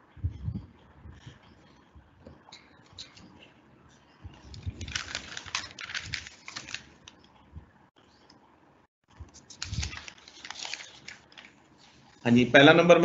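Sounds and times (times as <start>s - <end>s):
rustling: 9.2s - 12.3s.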